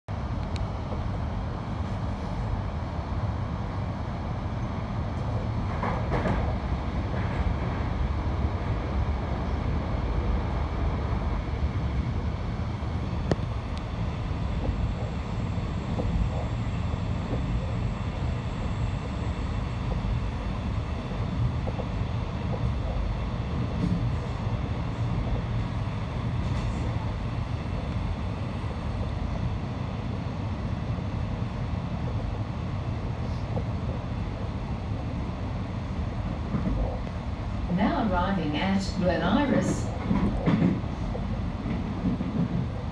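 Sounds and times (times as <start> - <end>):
train wheels rumbling on rails: 0.1 - 42.9.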